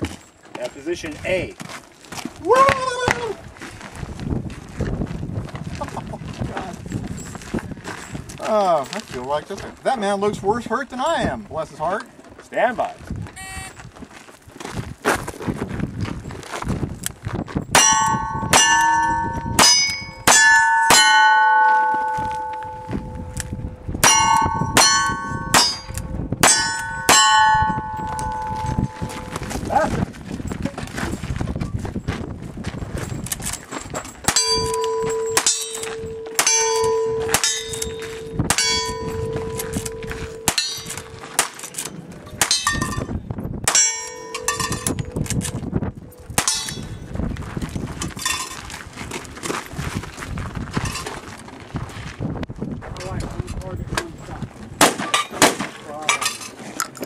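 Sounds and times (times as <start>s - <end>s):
steel plate clanging: 17.7s - 29.7s, 33.1s - 45.6s, 46.3s - 47.0s, 54.9s - 56.6s.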